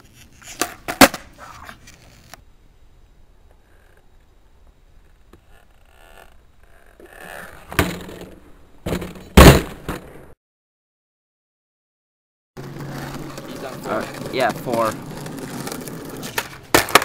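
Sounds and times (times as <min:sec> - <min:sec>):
skateboard landing clack: 0:00.4 - 0:01.8, 0:07.7 - 0:10.3, 0:15.6 - 0:17.0
skateboard tail pop: 0:00.4 - 0:01.8, 0:16.2 - 0:17.0.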